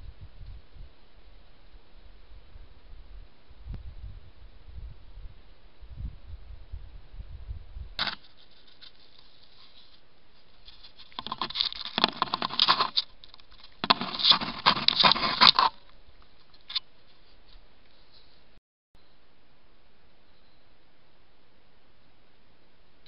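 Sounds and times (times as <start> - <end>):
rustling in dry grass: 8.0 - 18.5.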